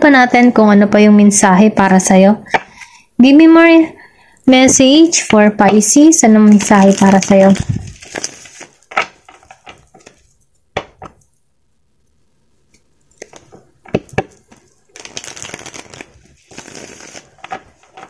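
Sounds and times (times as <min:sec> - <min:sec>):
cards riffling: 0:13.2 - 0:18.0.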